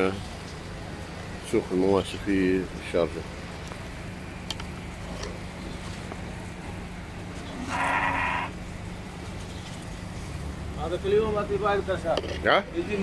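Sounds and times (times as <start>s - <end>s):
steady low hum: 0.0s - 13.0s
goat bleating: 7.5s - 8.6s.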